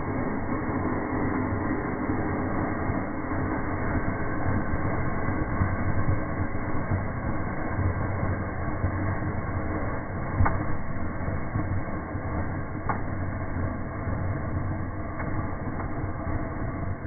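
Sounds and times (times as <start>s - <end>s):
firework rushing sputtering burn: 0.0s - 17.0s
low rumble: 0.0s - 17.0s
sharp firework pops: 10.3s - 10.8s.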